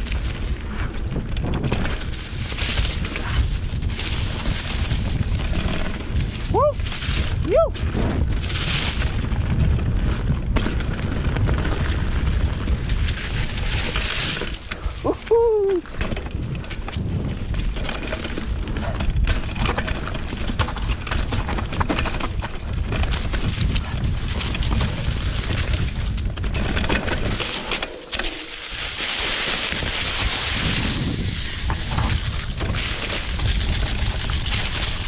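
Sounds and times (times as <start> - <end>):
wind buffeting microphone: 0.0 - 27.5, 28.6 - 35.0
bike rattling and knocking: 0.0 - 35.0
mountain bike rolling over dirt: 0.0 - 35.0.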